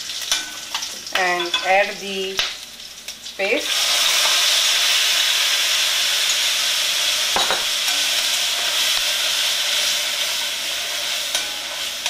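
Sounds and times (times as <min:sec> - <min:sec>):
paste sizzling in hot oil: 0:02.7 - 0:12.0
spoon scraping a pan: 0:09.7 - 0:12.0.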